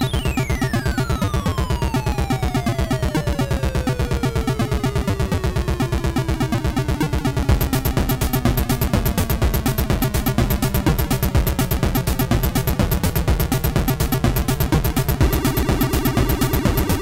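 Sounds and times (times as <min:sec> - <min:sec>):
chiptune music: 0:00.0 - 0:17.0
high ticking: 0:07.4 - 0:17.0.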